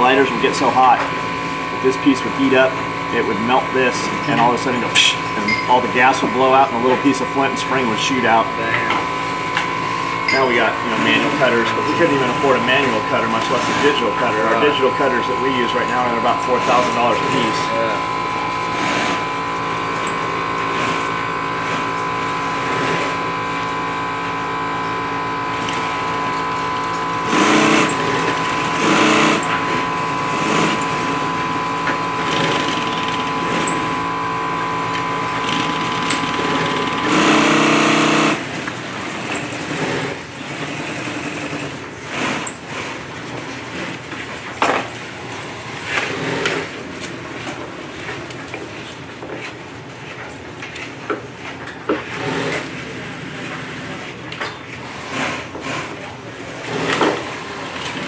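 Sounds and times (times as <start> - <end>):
steady hum: 0.0 - 41.9
sewing machine stitching: 10.4 - 14.9, 18.6 - 23.3, 25.0 - 34.0, 34.8 - 42.9, 52.1 - 54.0, 54.9 - 58.0.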